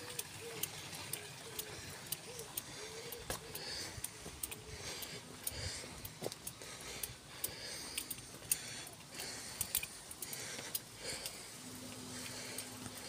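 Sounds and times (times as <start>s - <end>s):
small sharp clicks: 0.0s - 13.0s
footsteps on concrete: 2.6s - 10.8s.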